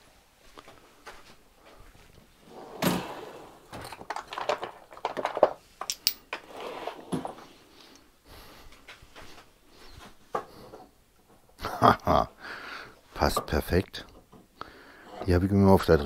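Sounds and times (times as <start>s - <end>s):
clicks and knocks of items set down: 2.8s - 7.5s.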